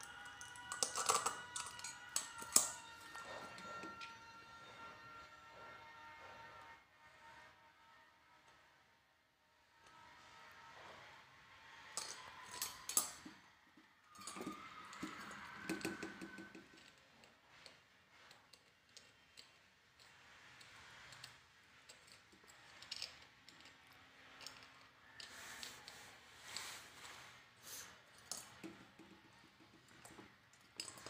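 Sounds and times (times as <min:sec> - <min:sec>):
small metal parts clicking and rattling: 0:00.0 - 0:04.2, 0:11.6 - 0:31.0.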